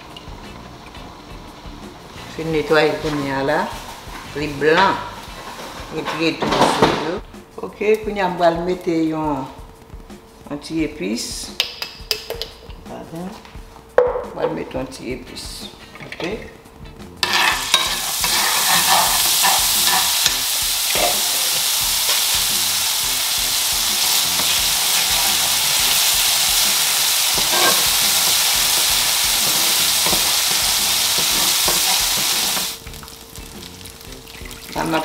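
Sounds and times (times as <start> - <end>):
seasoning sizzling in frying pan: 0.0 - 5.8, 17.0 - 35.0
wooden spoon scraping: 17.2 - 21.2, 24.0 - 32.8.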